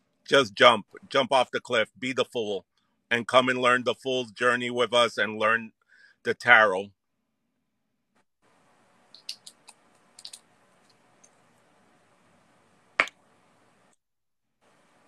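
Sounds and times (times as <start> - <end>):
small objects clicking: 9.1 - 11.4.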